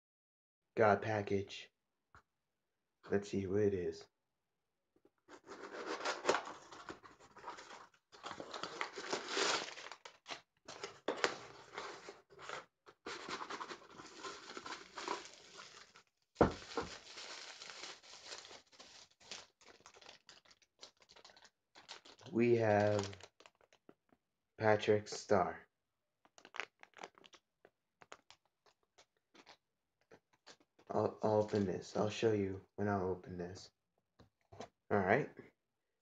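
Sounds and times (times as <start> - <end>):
envelope tearing and crinkling: 5.3 - 23.8, 26.3 - 29.6.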